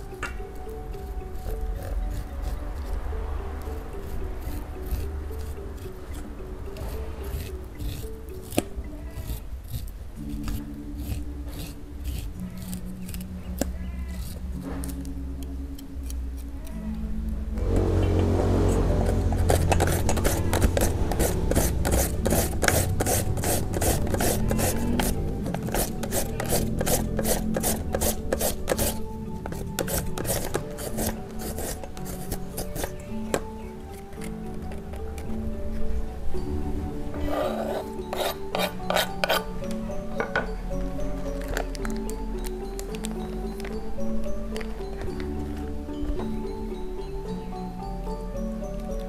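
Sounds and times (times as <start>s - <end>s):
soft background music: 0.0s - 49.0s
knife scraping corn cob: 0.9s - 16.8s, 18.5s - 35.8s, 37.2s - 39.5s
carrot rasping on a grater: 1.0s - 15.1s, 19.0s - 33.4s, 37.2s - 39.5s.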